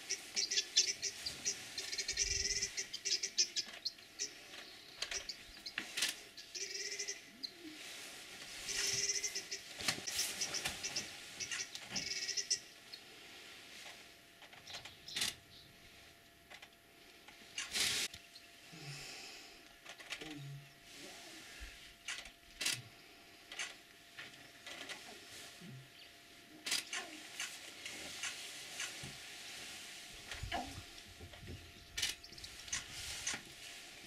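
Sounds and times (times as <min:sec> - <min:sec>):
birds calling: 0:00.0 - 0:13.3, 0:31.4 - 0:33.0.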